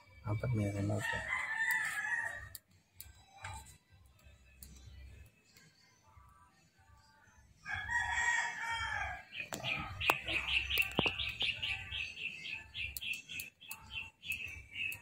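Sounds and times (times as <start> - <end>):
rooster crowing: 1.0 - 2.6, 7.6 - 9.3
sharp clicks: 9.5 - 11.6, 12.9 - 15.0.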